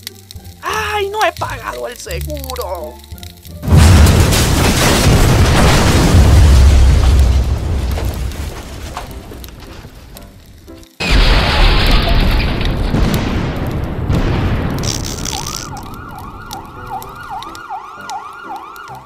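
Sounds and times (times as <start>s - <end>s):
cartoon explosion rumbling: 3.6s - 8.4s, 11.0s - 17.0s
emergency siren wailing: 15.6s - 19.0s.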